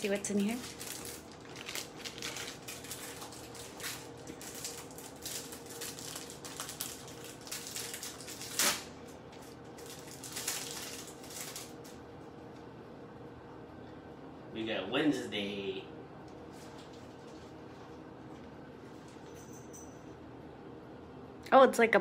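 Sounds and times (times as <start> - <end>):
plastic packaging crinkling: 0.0 - 12.0
faint steady hum: 0.0 - 22.0.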